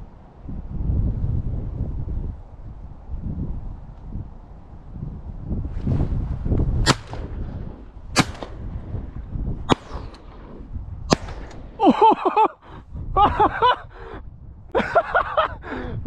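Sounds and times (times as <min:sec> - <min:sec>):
shotgun shots: 0:06.8 - 0:07.5, 0:08.2 - 0:08.7, 0:09.7 - 0:11.8.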